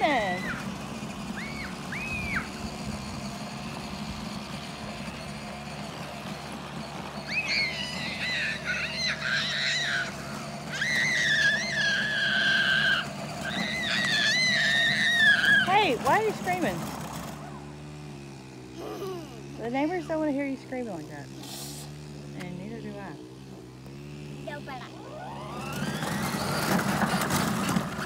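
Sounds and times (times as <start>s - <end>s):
ride-on toy motor humming: 0.0s - 28.0s
child screaming: 0.1s - 0.7s, 1.4s - 2.6s, 7.2s - 15.8s.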